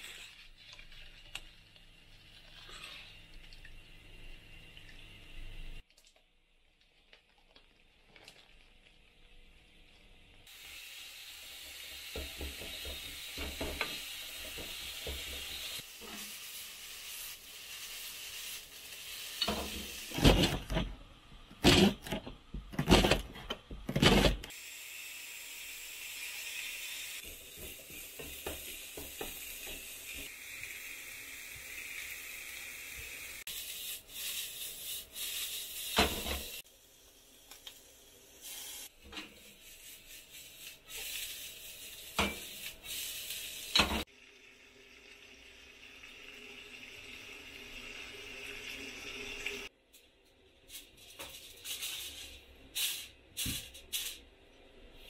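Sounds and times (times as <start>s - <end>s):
meat sizzling in a pan: 10.5s - 20.2s, 24.5s - 49.7s.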